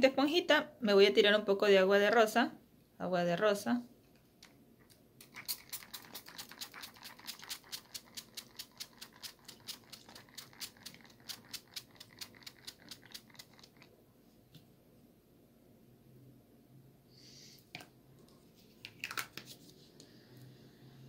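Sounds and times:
fingertips patting skin: 0:05.2 - 0:13.8.

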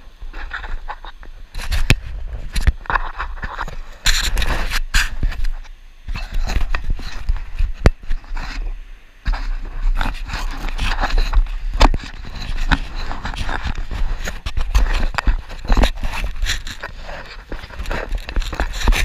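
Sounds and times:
wind rumble on microphone: 0:00.0 - 0:19.0
tyres scraping on sand: 0:02.9 - 0:19.0
bike clicks and rattles: 0:09.3 - 0:19.0.

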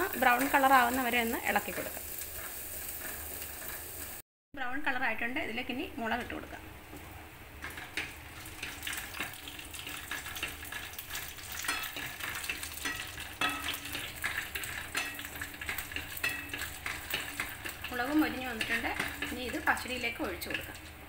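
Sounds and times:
oil sizzling in a pan: 0:00.0 - 0:04.2, 0:05.7 - 0:21.0
wooden spatula scraping pan: 0:02.2 - 0:04.2.

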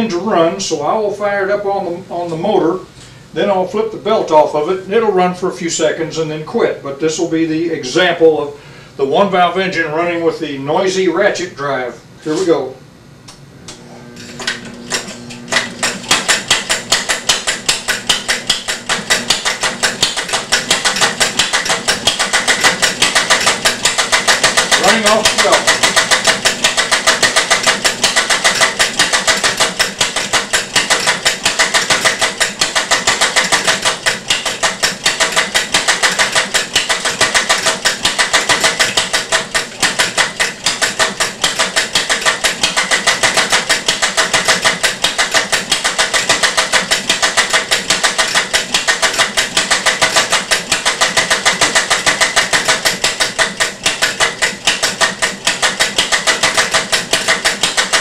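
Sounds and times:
small engine clattering: 0:14.4 - 0:58.0.

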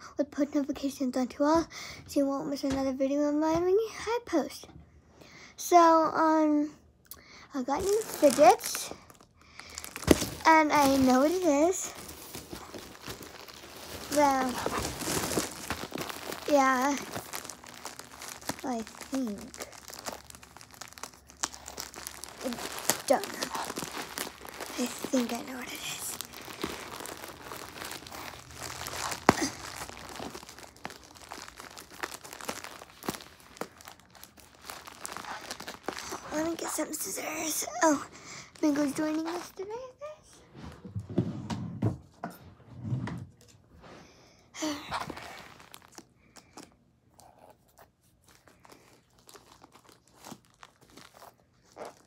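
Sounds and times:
plastic mailer bag crinkling: 0:07.6 - 0:39.8, 0:44.9 - 0:46.7, 0:48.1 - 0:52.0.

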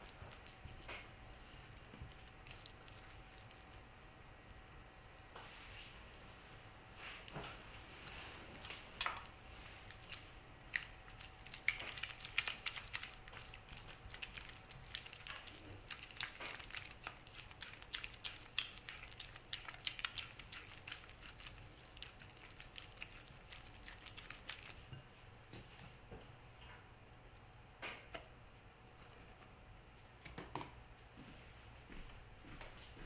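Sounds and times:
wet squishing batter: 0:00.0 - 0:26.0.

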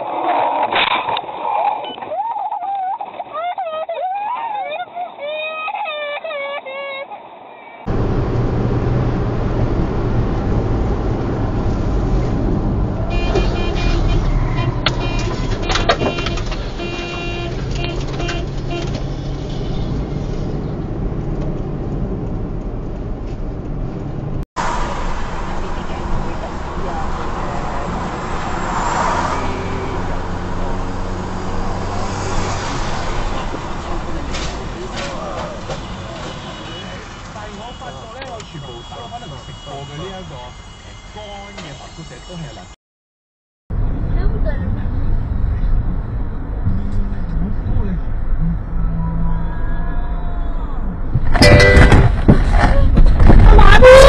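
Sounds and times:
car road noise at highway speed: 0:00.0 - 0:03.4, 0:07.2 - 0:42.8, 0:43.7 - 0:54.0.

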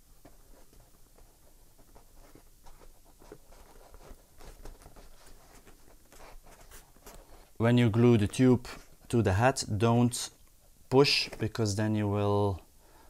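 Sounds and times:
light taps and rubbing on plastic: 0:00.2 - 0:07.5.

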